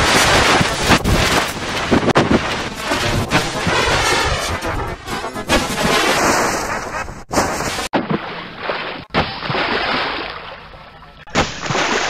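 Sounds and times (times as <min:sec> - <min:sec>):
water rushing and splashing: 0:00.0 - 0:12.0.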